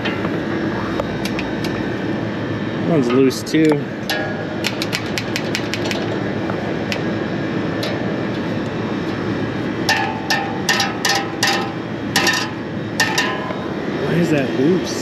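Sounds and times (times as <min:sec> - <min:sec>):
steady background rush: 0:00.0 - 0:15.0
ringing metal knocks: 0:04.1 - 0:06.1, 0:09.9 - 0:13.6.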